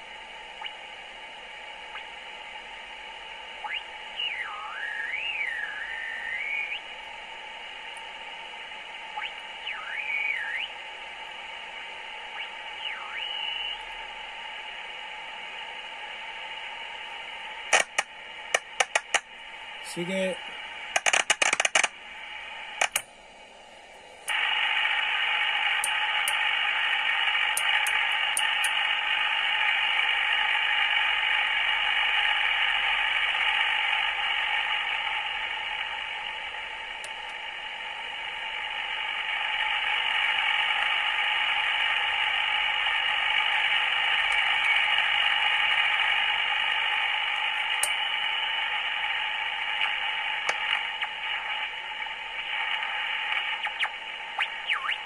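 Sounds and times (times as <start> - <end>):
radio static hiss: 0.0 - 55.0
sharp clicks: 17.7 - 19.3, 20.9 - 21.9, 22.8 - 23.1, 27.5 - 28.8.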